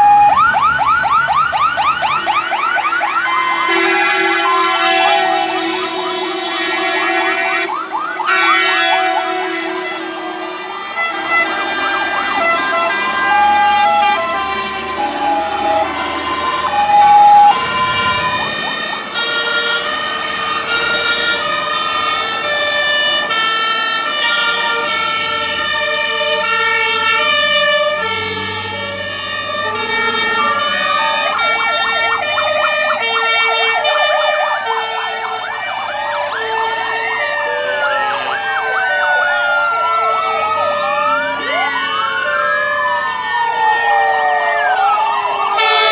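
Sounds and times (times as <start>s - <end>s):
two-tone fire engine sirens: 0.0s - 45.9s
wailing sirens: 0.0s - 45.9s
fast warble siren: 11.8s - 28.6s, 29.3s - 45.9s.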